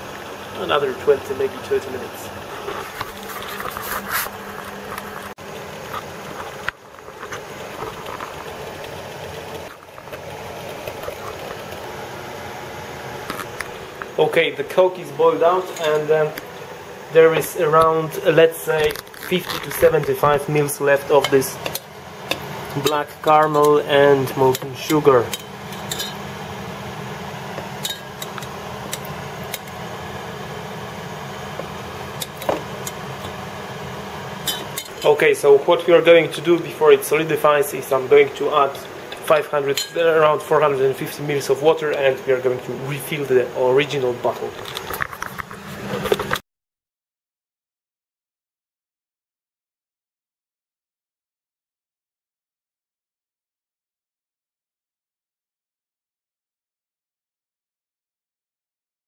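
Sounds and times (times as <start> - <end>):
liquid boiling with bubbling hiss: 0.0 - 46.4
metal spoon clinking on glass: 25.3 - 26.2, 27.8 - 29.7, 34.5 - 35.1, 39.8 - 40.0.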